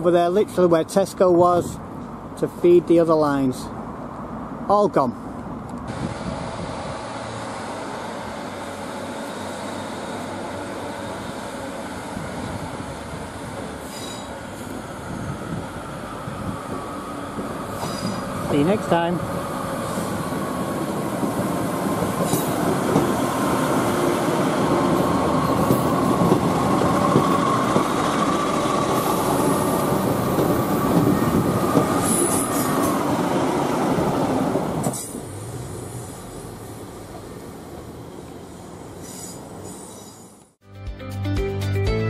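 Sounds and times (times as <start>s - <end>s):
distant train rumble: 0.0s - 40.4s
diesel train passing: 0.0s - 40.5s
wheels squealing on curve: 17.7s - 18.4s.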